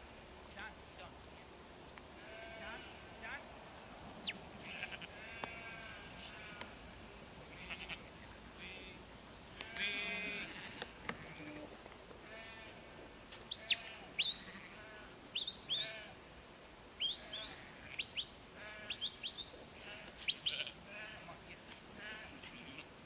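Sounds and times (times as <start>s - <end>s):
sheep bleating: 2.2s - 3.0s, 4.6s - 6.7s, 7.5s - 8.1s, 9.6s - 11.6s, 12.2s - 12.8s, 13.6s - 15.1s, 19.8s - 21.4s, 22.0s - 22.9s
high whistled chirps: 4.0s - 4.7s.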